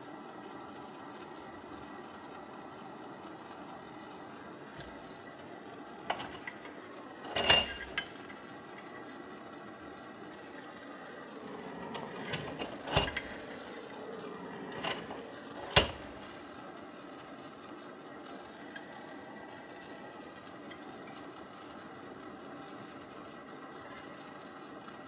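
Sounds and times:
steel parts clinking on vise: 6.1s - 6.6s, 7.2s - 8.2s, 11.4s - 16.2s.

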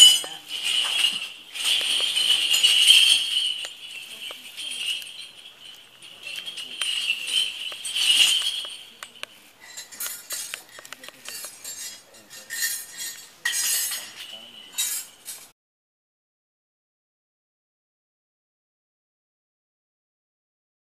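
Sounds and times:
steady high ringing: 0.0s - 15.4s
small metal bells jingling: 0.0s - 15.5s.

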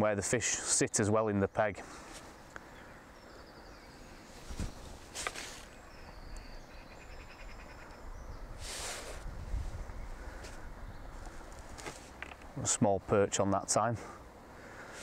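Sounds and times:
birds chirping: 0.0s - 15.0s
short rustles: 4.3s - 5.8s, 11.2s - 12.3s.

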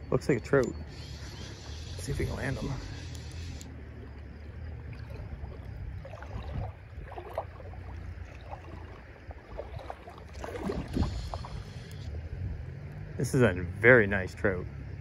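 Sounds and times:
river water flowing: 0.0s - 14.0s
faint splashes: 1.0s - 12.2s
wind on the microphone: 5.0s - 7.7s, 8.5s - 12.6s.

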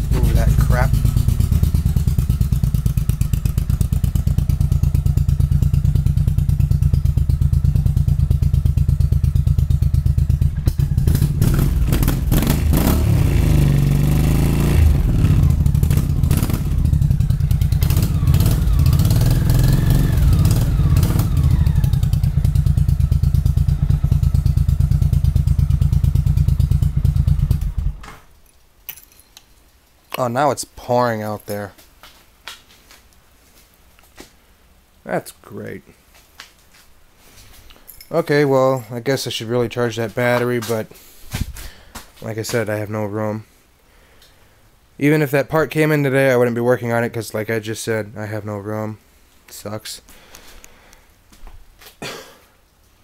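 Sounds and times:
engine popping: 0.0s - 28.1s
motorcycle engine revving: 0.0s - 28.1s.

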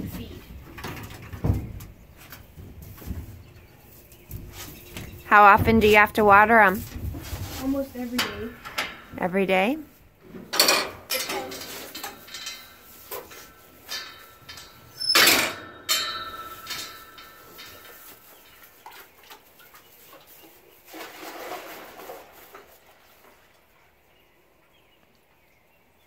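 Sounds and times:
pail and metal gate clanking: 8.0s - 9.3s, 10.2s - 19.2s, 20.9s - 22.8s
water pouring into bucket: 20.9s - 23.1s.

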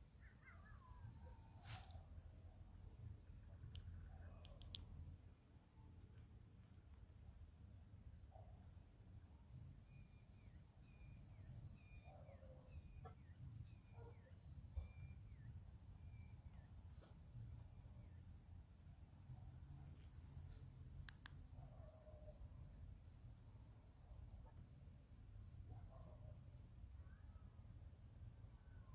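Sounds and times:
crickets trilling: 0.0s - 8.4s.

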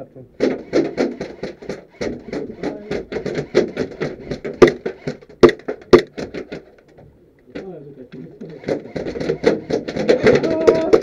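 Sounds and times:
airsoft guns firing rapidly: 0.4s - 6.7s, 8.5s - 11.0s
loud crack: 0.4s - 6.9s.

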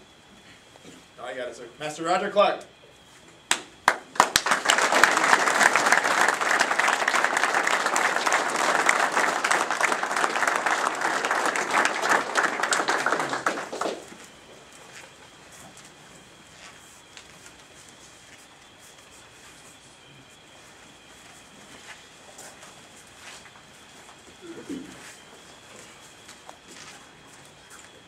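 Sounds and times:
group clapping: 3.5s - 14.3s.

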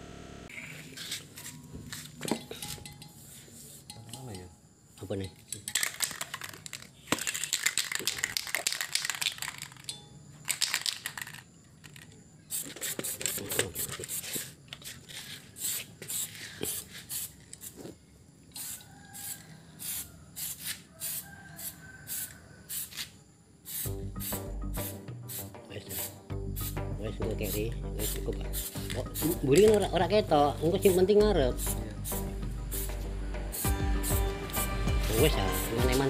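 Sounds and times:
spray can ball rattling: 5.2s - 17.8s, 18.5s - 23.1s, 23.7s - 26.8s, 27.4s - 36.0s
spray hissing bursts: 15.5s - 17.8s, 18.5s - 26.8s, 27.5s - 29.8s, 30.8s - 36.0s.

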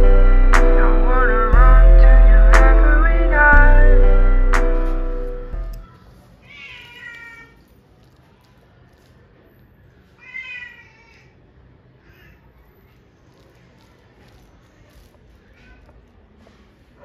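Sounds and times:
cats meowing: 6.4s - 7.6s, 10.2s - 11.3s.

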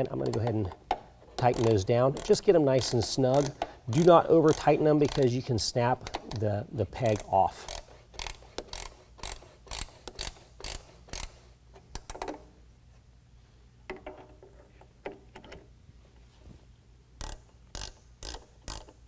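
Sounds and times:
ratcheting wrench clicking: 1.4s - 5.3s, 7.0s - 12.5s, 17.2s - 19.0s.

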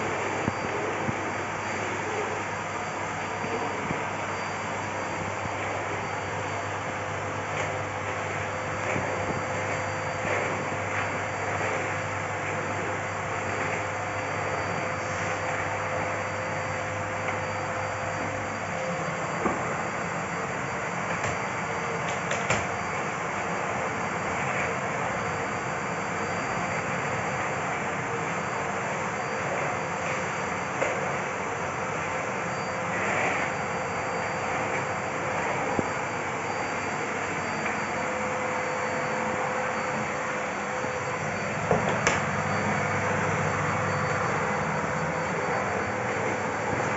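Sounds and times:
vacuum cleaner running: 0.0s - 46.9s
vacuum nozzle on laminate floor: 0.0s - 46.9s.

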